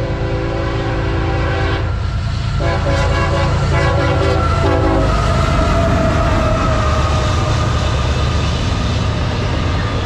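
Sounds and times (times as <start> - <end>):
train horn blast: 0.0 - 2.0, 2.6 - 5.4
diesel locomotive rumble: 0.0 - 10.0.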